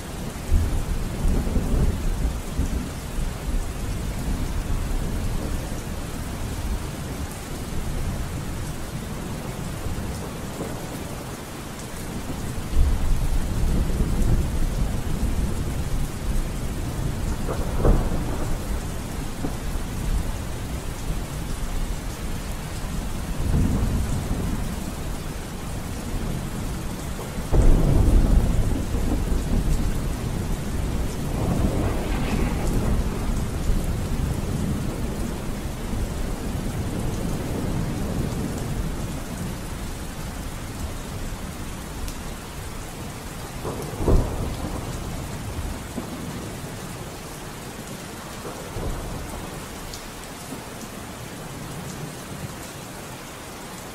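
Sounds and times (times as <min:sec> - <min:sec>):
steady rain: 0:00.0 - 0:53.9
rolling thunder: 0:12.1 - 0:39.8, 0:42.0 - 0:46.7
sharp thunder crack: 0:27.5 - 0:35.5.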